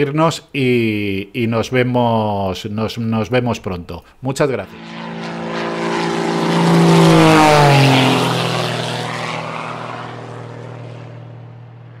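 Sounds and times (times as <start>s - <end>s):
aircraft engine fly-by: 4.7s - 12.0s.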